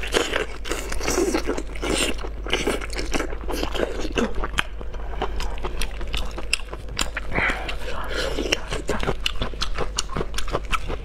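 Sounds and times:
mouth biting and chewing: 0.0s - 11.0s.

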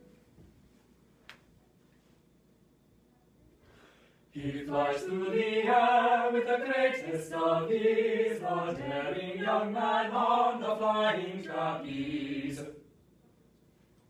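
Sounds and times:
choir singing: 4.4s - 12.9s.

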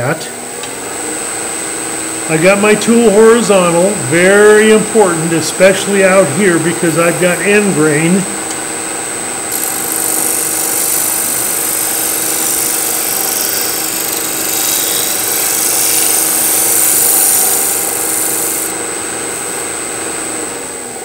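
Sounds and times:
wood lathe motor hum: 0.4s - 21.0s
chisel scraping spinning wood: 9.5s - 18.8s.

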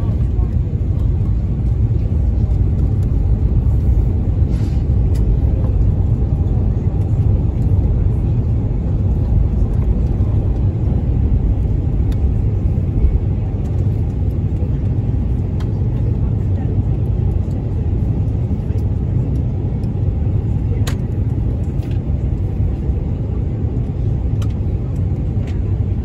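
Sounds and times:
aircraft cabin rumble: 0.0s - 26.0s
airflow over fuselage: 0.0s - 26.0s
jet engines: 0.0s - 26.0s.

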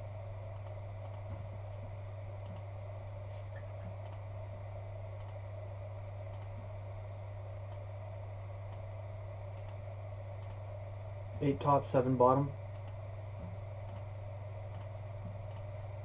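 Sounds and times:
low hum: 0.0s - 16.0s
computer mouse clicking: 0.5s - 1.4s, 2.4s - 2.7s, 3.6s - 4.3s, 5.2s - 5.4s, 6.2s - 6.6s, 8.7s - 8.9s, 9.5s - 9.8s, 10.4s - 10.6s, 12.7s - 14.1s, 14.7s - 15.8s.

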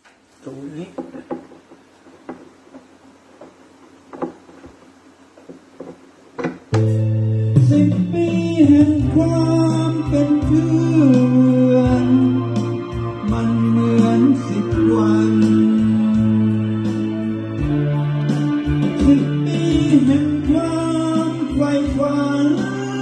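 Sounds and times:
faint knocks: 0.8s - 6.8s
heavy steady bass line: 6.7s - 23.0s
song with guitar and singing: 7.5s - 23.0s.

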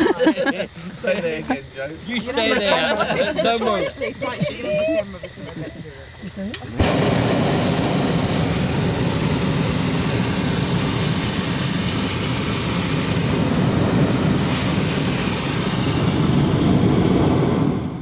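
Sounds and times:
propane burner roaring: 0.0s - 18.0s.

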